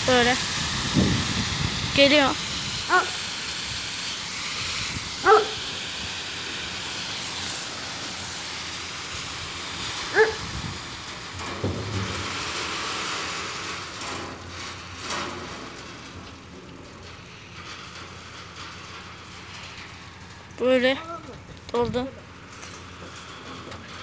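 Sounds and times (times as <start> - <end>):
harvester machine running: 0.0 - 24.0
seeds pouring into trailer: 0.0 - 24.0
dog barking: 2.9 - 3.2, 5.2 - 5.6, 10.1 - 10.4.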